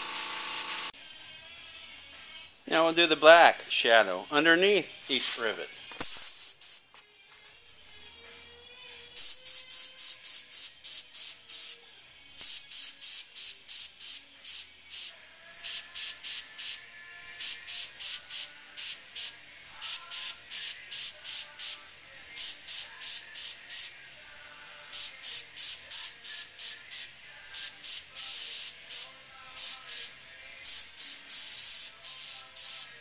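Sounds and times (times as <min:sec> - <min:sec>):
airbrush spraying in short puffs: 0:06.0 - 0:06.8, 0:09.2 - 0:11.8, 0:30.7 - 0:33.0.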